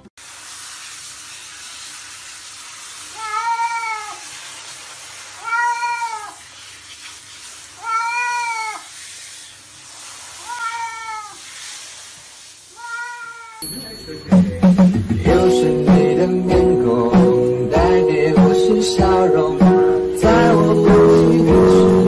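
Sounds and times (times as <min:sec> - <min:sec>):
shower water spraying: 0:00.0 - 0:22.0
cat meowing: 0:03.1 - 0:04.2, 0:05.4 - 0:06.4, 0:07.8 - 0:08.9, 0:10.4 - 0:11.4, 0:12.7 - 0:13.6.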